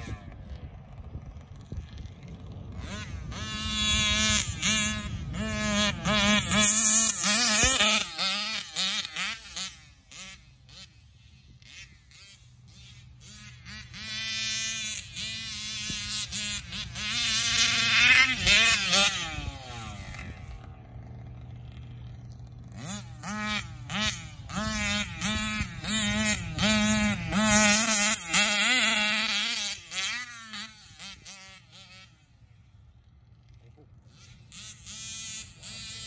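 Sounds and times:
rc car engine revving: 0.0 - 36.0.

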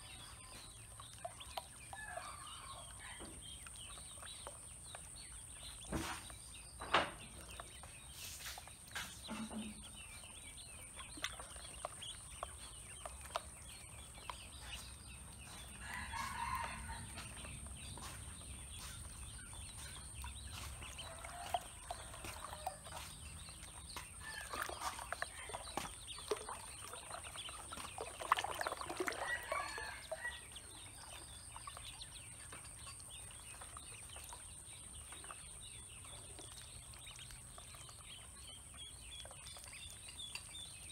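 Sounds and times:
chickens clucking: 0.0 - 40.9
ducklings splashing in water: 0.0 - 40.9
rooster crowing: 15.8 - 17.2.

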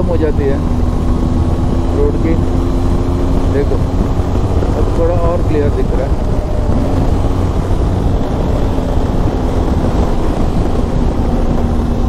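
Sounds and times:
motorcycle engine humming: 0.0 - 12.0
wind noise on microphone: 0.0 - 12.0.

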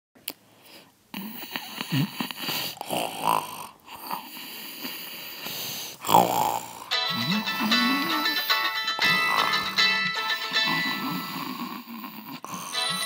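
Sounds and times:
person imitating snoring: 1.2 - 9.8, 10.6 - 13.0.

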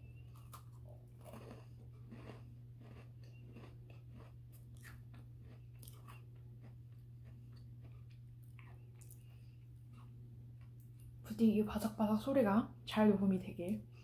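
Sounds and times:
crunching and chewing cookie: 0.0 - 11.2
steady low hum: 0.0 - 14.0.

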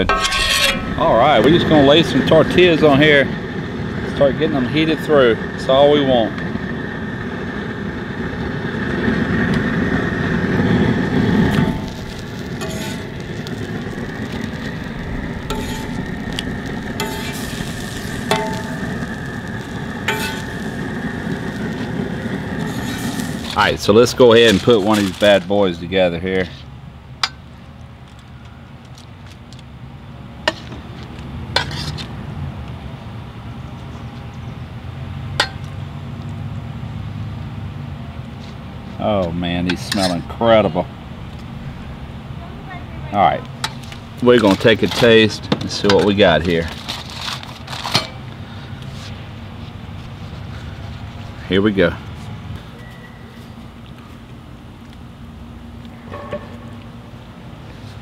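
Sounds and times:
metal utensil scraping a steel pan: 0.0 - 1.8, 12.6 - 13.6, 15.4 - 19.2, 20.1 - 20.8
spatula scraping metal griddle: 0.0 - 2.3, 11.2 - 25.4, 31.6 - 32.1, 39.7 - 40.3
low rumble: 0.0 - 24.0, 40.8 - 44.4
gas burner hissing: 0.0 - 26.4, 38.7 - 58.0.

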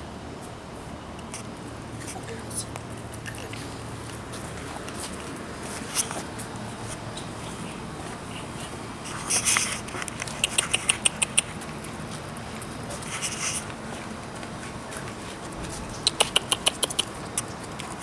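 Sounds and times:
puppies squeaking and squealing: 10.2 - 11.6, 15.6 - 17.5.

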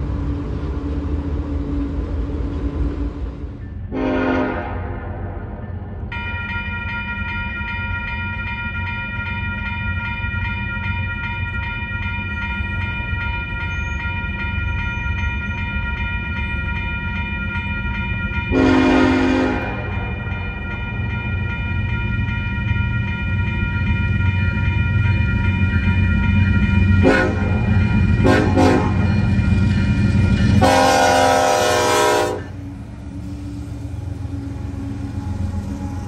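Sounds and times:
locomotive horn blast: 3.9 - 5.0, 18.5 - 19.9, 27.0 - 29.1, 30.5 - 32.6
crossing bell ringing: 5.5 - 36.0.

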